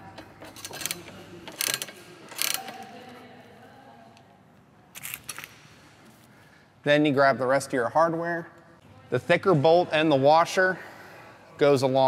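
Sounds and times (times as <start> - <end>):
ratcheting wrench clicking: 0.4 - 2.9.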